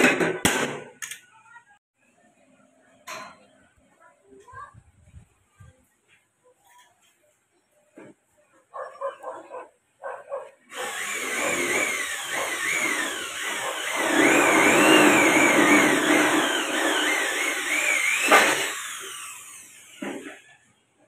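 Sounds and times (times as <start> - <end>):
electric drill boring: 10.7 - 20.5.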